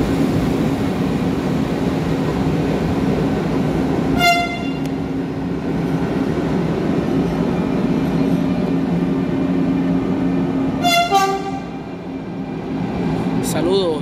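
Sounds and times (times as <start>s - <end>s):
locomotive machinery humming: 0.0s - 14.0s
short locomotive horn toot: 4.2s - 5.0s, 10.8s - 11.8s.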